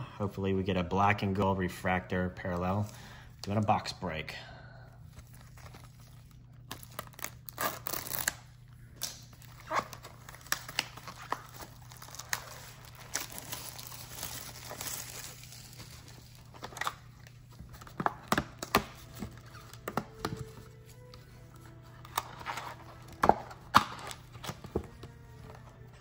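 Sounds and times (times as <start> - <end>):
plastic shrink wrap tearing: 5.2 - 21.2.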